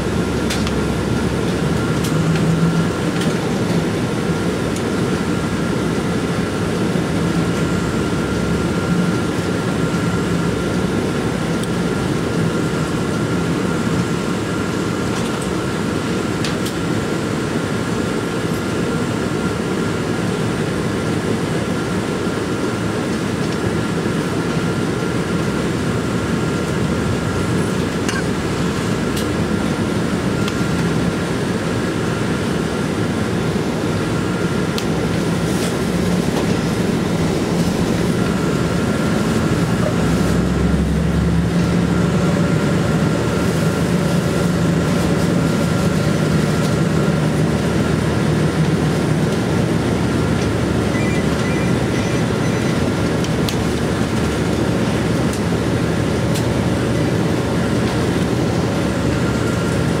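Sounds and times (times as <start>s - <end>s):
road noise: 0.0s - 12.4s, 25.4s - 60.0s
bus engine hum: 0.0s - 60.0s.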